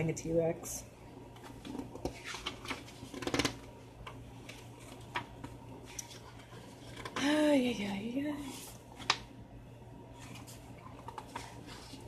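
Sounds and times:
book pages turning: 1.3s - 7.2s, 8.4s - 9.3s, 10.1s - 12.0s.

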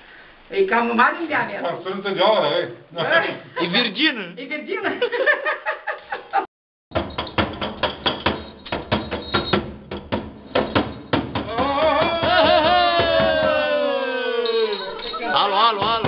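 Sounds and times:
metal sheet clattering: 6.9s - 11.4s
high wavering tone: 14.4s - 15.4s.

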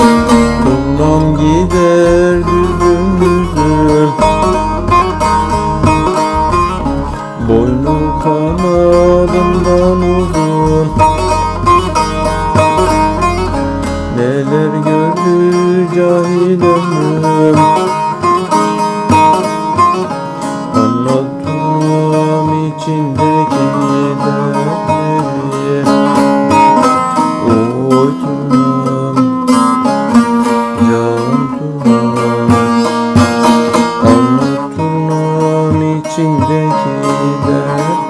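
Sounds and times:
plucked string instrument melody: 0.0s - 38.0s.

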